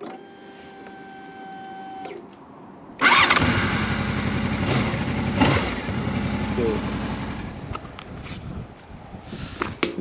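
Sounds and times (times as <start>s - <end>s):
motorcycle engine starting and idling: 3.0s - 7.9s.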